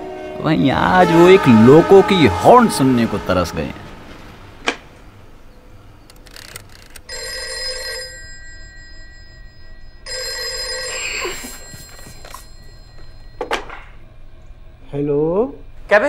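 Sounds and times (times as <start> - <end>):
desk telephone ringing: 7.1 - 14.0.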